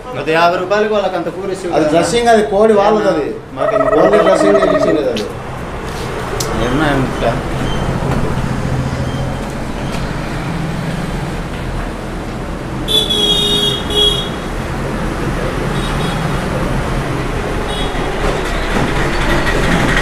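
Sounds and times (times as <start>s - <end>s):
street traffic hum: 5.0s - 20.0s.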